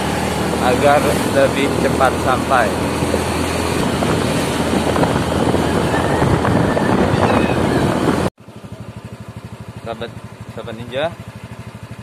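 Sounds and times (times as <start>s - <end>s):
motorcycle engine running: 0.0s - 12.0s
wind noise on microphone: 0.9s - 8.3s.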